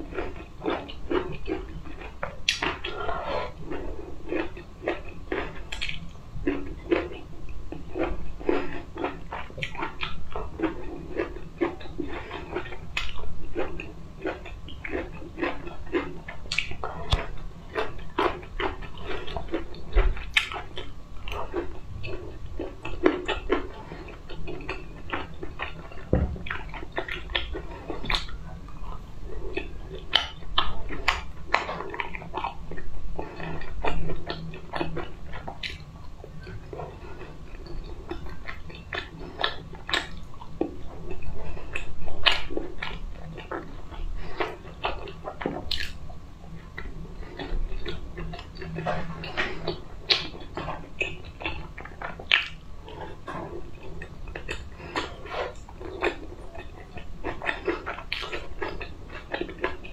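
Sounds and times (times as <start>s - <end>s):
chewing with wet mouth clicks: 0.0s - 59.9s.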